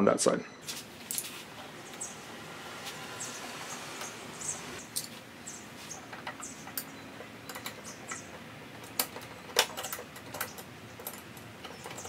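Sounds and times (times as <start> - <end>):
plastic and metal parts clicking: 6.1 - 12.0.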